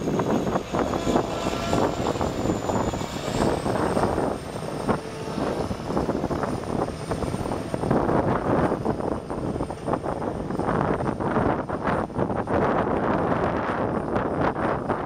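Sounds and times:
thin high whine: 0:00.0 - 0:11.6.

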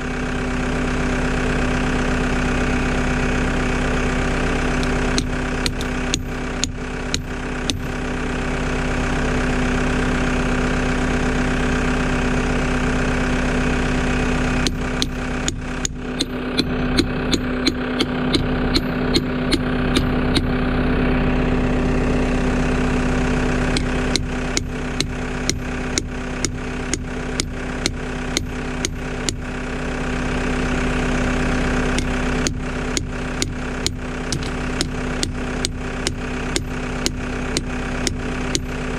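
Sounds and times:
diesel engine idling: 0:00.0 - 0:38.9
hammer striking steel pin: 0:04.8 - 0:07.9, 0:14.6 - 0:20.5, 0:23.8 - 0:29.4, 0:32.0 - 0:38.7.

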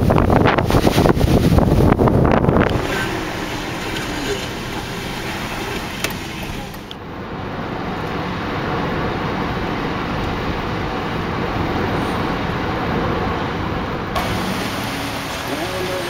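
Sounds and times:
car engine and tyre noise: 0:00.0 - 0:16.0
high hiss: 0:14.2 - 0:16.0.

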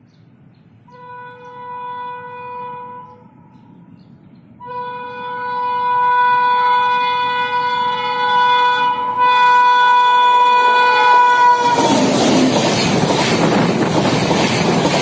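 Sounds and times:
locomotive air horn blasts: 0:00.9 - 0:03.6, 0:04.6 - 0:12.2.

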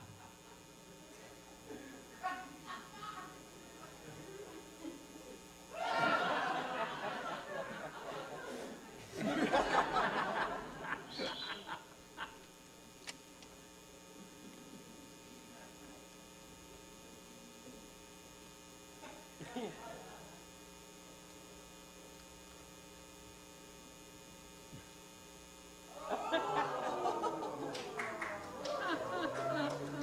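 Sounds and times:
voices and laughter: 0:00.0 - 0:12.5, 0:19.0 - 0:20.4, 0:25.9 - 0:30.0
electrical mains hum: 0:00.0 - 0:30.0.

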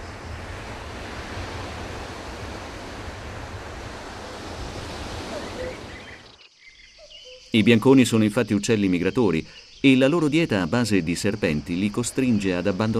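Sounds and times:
sea waves washing: 0:00.0 - 0:06.4.

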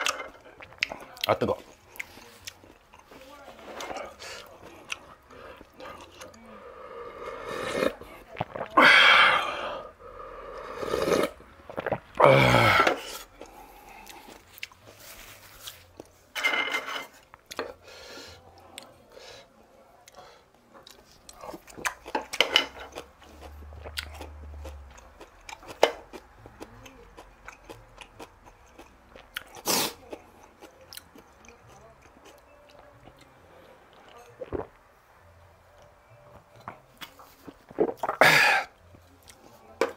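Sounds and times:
paper towel rustling: 0:14.9 - 0:15.9.

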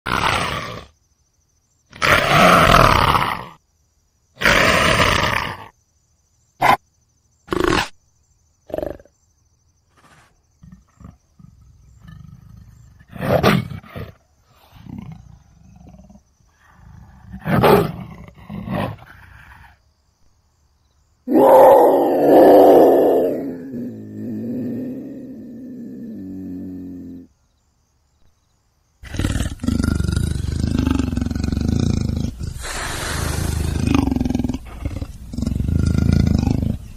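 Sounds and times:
big cat growling: 0:01.9 - 0:03.6, 0:10.0 - 0:19.8, 0:21.3 - 0:27.3, 0:29.0 - 0:36.9
big cat roaring: 0:01.9 - 0:03.6, 0:21.3 - 0:27.3, 0:29.0 - 0:36.9.

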